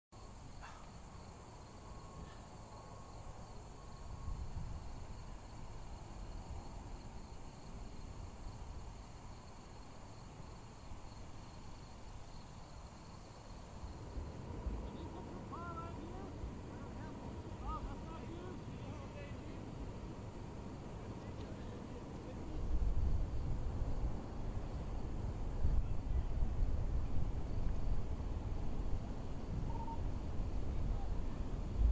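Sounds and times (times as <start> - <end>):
insect chorus: 0.2 - 31.9
wind rumbling on microphone: 3.4 - 9.0, 13.9 - 31.9.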